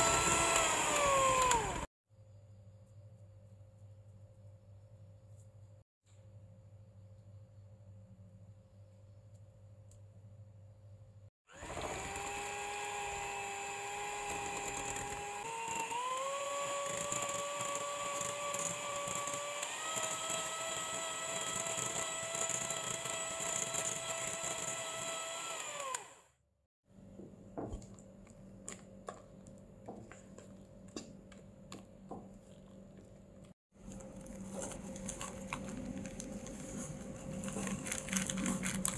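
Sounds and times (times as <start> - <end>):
electric hand mixer whine: 0.0 - 1.9, 11.5 - 26.3.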